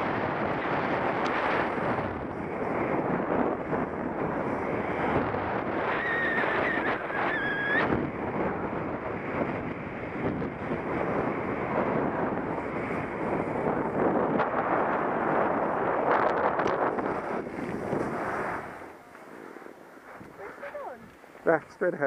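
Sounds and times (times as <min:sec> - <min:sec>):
wind rushing over microphone: 0:00.0 - 0:22.0
skis scraping over snow: 0:10.6 - 0:22.0.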